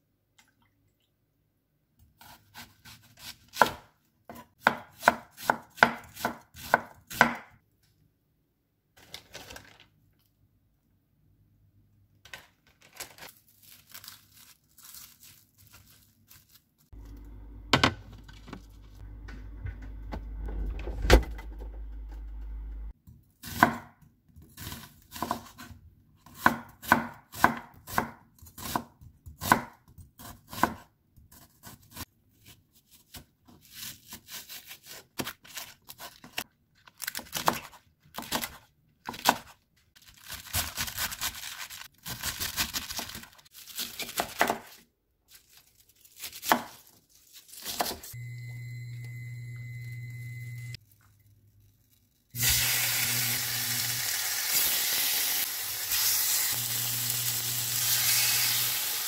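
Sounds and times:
knife chopping on wooden board: 0:02.2 - 0:07.5, 0:26.3 - 0:30.8.

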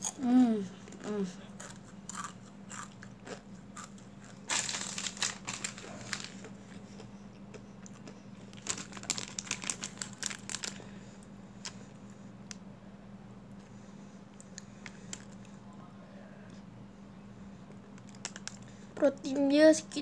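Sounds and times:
plastic snack packet crinkling: 0:04.3 - 0:06.5, 0:08.5 - 0:10.9, 0:18.0 - 0:18.7.

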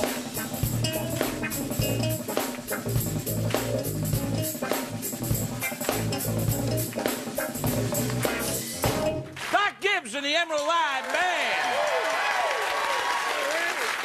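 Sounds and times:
bass line: 0:00.0 - 0:09.4
drum kit beat: 0:00.0 - 0:09.4.

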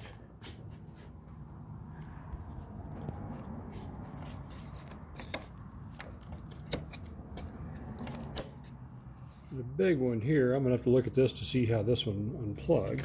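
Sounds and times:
fingers fumbling with plastic connectors: 0:03.0 - 0:09.1, 0:12.7 - 0:13.0.

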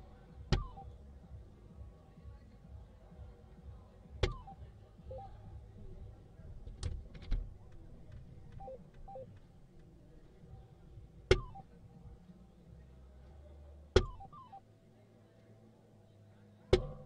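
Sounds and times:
darts clicking on dartboard: 0:00.5 - 0:00.8, 0:14.0 - 0:14.3
two-note electronic beeps: 0:00.5 - 0:01.0, 0:04.2 - 0:05.4, 0:08.6 - 0:09.3, 0:11.3 - 0:11.7, 0:14.0 - 0:14.6.

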